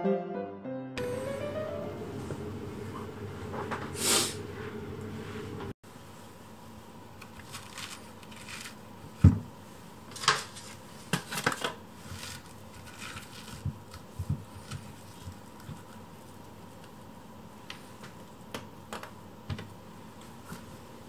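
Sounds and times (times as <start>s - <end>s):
background music: 0.0s - 2.7s.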